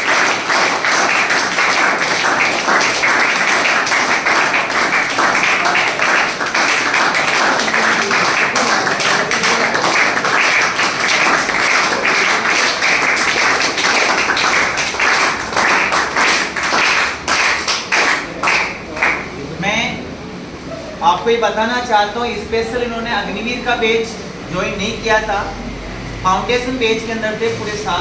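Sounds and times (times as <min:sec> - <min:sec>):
crowd clapping: 0:00.0 - 0:19.4.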